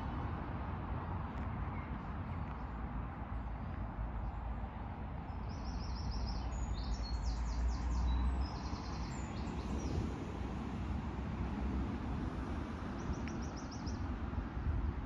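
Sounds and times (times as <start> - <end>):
wind rumble on microphone: 0.0 - 15.0
songbird chirping: 5.2 - 10.0.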